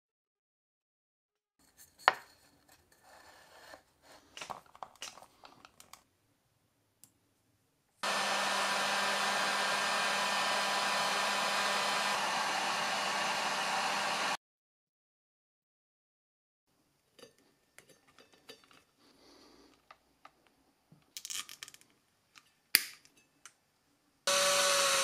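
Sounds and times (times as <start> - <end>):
clicks and knocks of parts handled: 4.3 - 6.1, 19.7 - 23.6
heat gun blowing with low hum: 8.0 - 14.4, 24.3 - 25.0.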